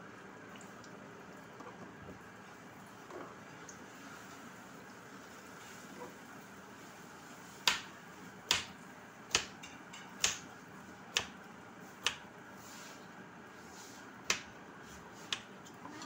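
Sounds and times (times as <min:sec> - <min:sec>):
knife chopping on cutting board: 0:07.6 - 0:07.9, 0:08.5 - 0:10.4, 0:12.0 - 0:12.2, 0:14.2 - 0:15.5.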